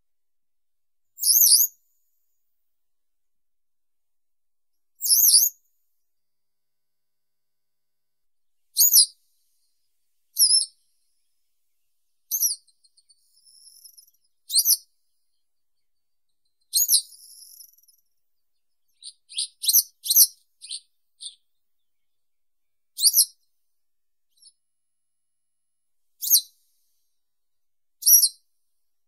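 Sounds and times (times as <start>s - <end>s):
buzzy bird trill: 10.4s - 10.7s, 12.3s - 15.4s, 16.4s - 18.1s, 18.7s - 21.6s, 23.0s - 23.3s
bird singing high notes: 19.0s - 21.4s.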